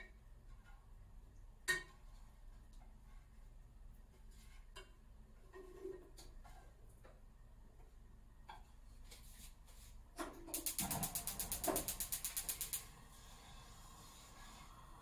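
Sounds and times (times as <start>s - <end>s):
rapid sharp clicks: 10.6s - 12.9s.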